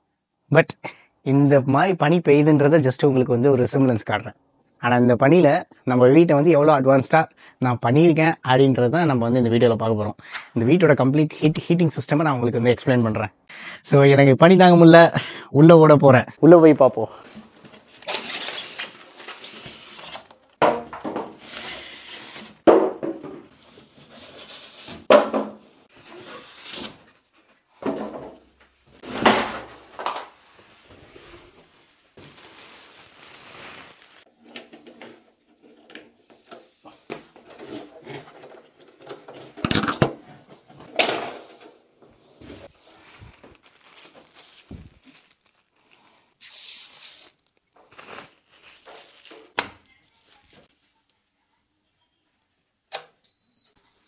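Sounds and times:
knocks and thumps of parts: 25.1 - 25.6
plastic bag rustling and crinkling: 29.0 - 34.4, 42.2 - 46.4, 47.2 - 51.1.

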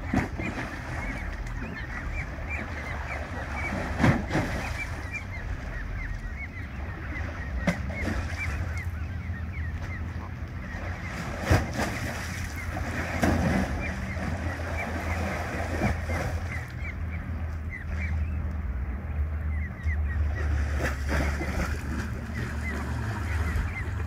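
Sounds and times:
lapping water: 0.0 - 9.1
goslings peeping: 0.0 - 24.0.

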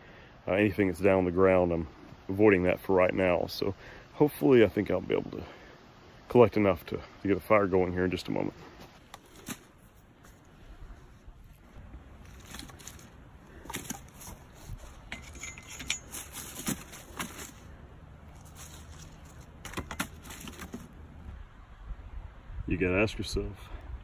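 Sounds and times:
dry sticks clattering together: 12.2 - 17.7, 18.3 - 21.0.

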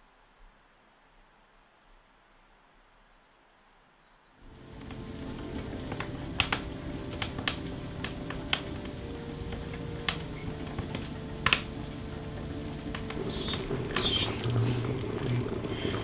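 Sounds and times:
steady low hum: 4.4 - 16.0
wood fire crackling: 4.4 - 16.0.

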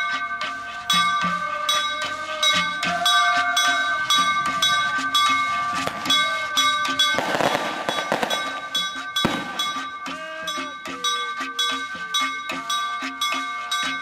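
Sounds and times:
procession percussion beat: 0.0 - 14.0
steady ringing tones: 0.0 - 14.0
fireworks hiss and crackle: 5.7 - 10.2
firework bang: 7.2 - 9.9.

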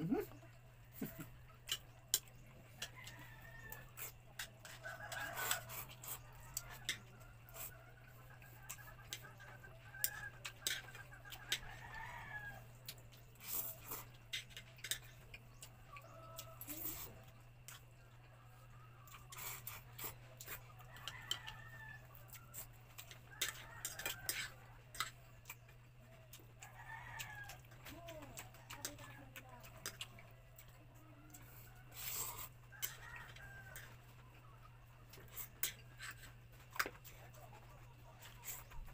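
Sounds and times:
rooster crowing: 2.8 - 7.8, 11.4 - 12.7, 20.8 - 24.6, 26.6 - 28.2, 31.0 - 34.1
chewing and slurping noodles: 3.8 - 9.3, 12.8 - 21.3, 29.6 - 34.4.

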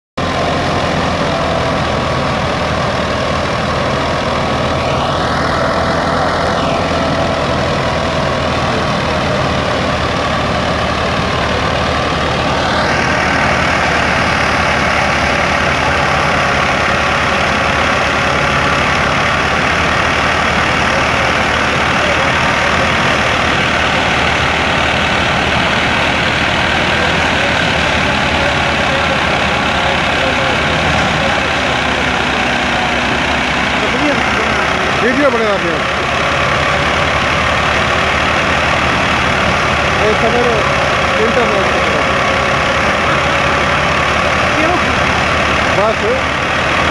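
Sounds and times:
diesel tractor engine under load: 0.2 - 46.9.

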